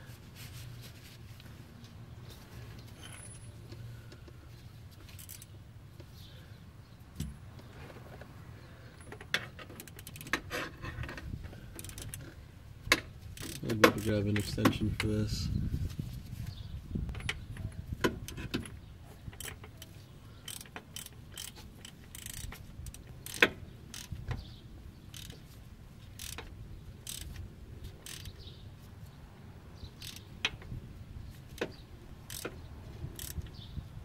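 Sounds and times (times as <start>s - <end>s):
socket ratchet clicking: 9.8s - 10.4s, 11.8s - 12.3s, 13.4s - 14.6s, 20.4s - 24.2s, 25.1s - 25.4s, 26.2s - 27.4s, 28.0s - 28.4s, 30.0s - 30.3s, 32.3s - 32.6s, 33.2s - 33.5s.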